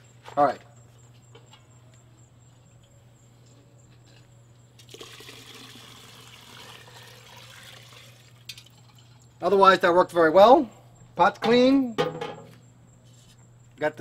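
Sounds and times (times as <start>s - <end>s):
oil trickling through strainer: 4.8s - 9.3s.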